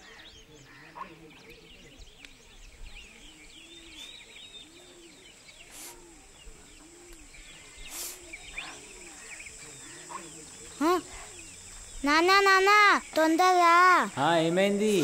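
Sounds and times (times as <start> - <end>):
low rounded bird call: 0.0 - 13.2
small birds chirping: 0.0 - 15.0
brief hissing: 5.6 - 6.1, 7.8 - 8.4.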